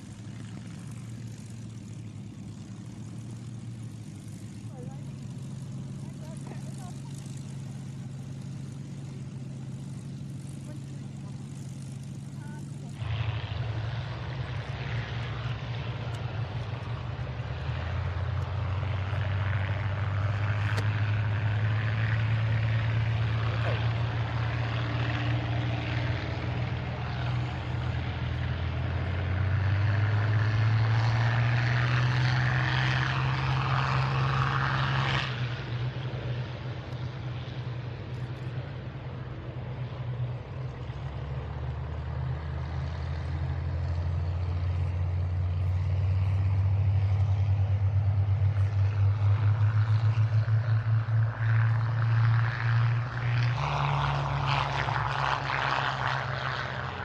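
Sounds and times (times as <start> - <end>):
propeller aircraft engines droning: 0.0 - 57.0.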